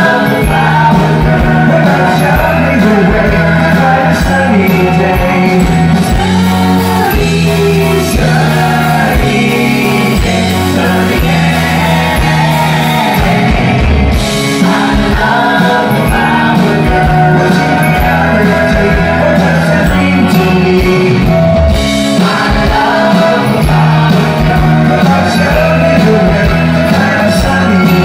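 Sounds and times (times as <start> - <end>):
bass: 0.0 - 28.0
electric guitars: 0.0 - 28.0
keyboard: 0.0 - 28.0
steady drum beat: 0.0 - 28.0
voices singing together: 0.0 - 28.0.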